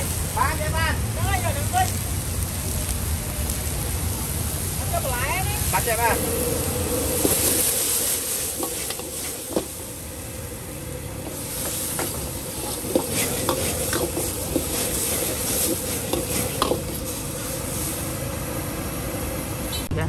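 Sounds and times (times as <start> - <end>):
food sizzling: 0.0 - 19.8
steady hum: 5.7 - 20.0
metal spatula scraping wok: 5.8 - 10.0, 11.2 - 18.2.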